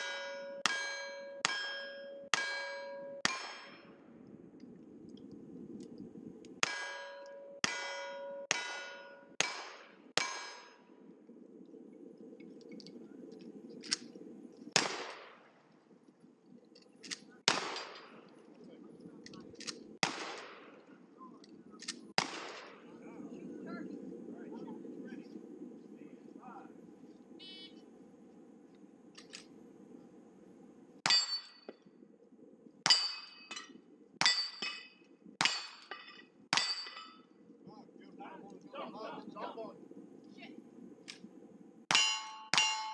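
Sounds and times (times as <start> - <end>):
ring of struck steel target: 0.0 - 3.9, 6.6 - 10.8, 41.9 - 42.9
rifle shots: 6.6 - 10.8, 14.8 - 15.6, 17.5 - 18.2, 20.0 - 20.8, 22.2 - 22.9
small metallic clank: 32.9 - 37.3.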